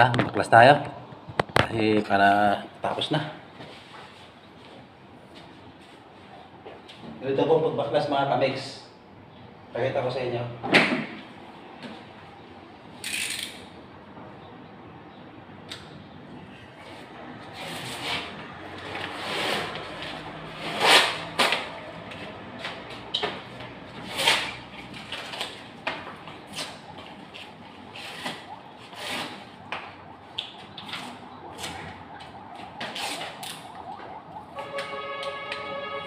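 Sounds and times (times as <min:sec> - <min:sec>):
wallpaper being torn off: 0:19.1 - 0:21.7, 0:24.0 - 0:25.6
steady multi-pitch tone: 0:26.7 - 0:36.0.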